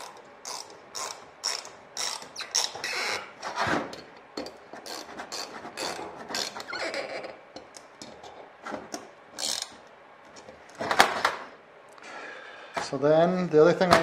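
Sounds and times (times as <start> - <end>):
ratchet wrench clicking: 0.0 - 2.3, 9.4 - 9.7.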